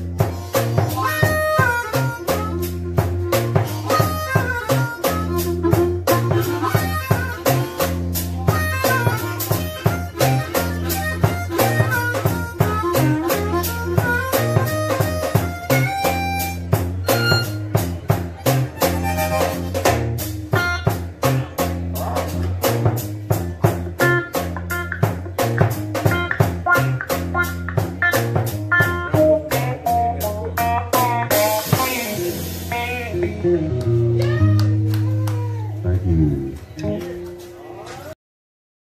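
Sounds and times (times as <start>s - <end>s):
drum beat: 0.0s - 37.4s
low repeating riff: 0.0s - 37.6s
harmonica: 0.5s - 21.0s.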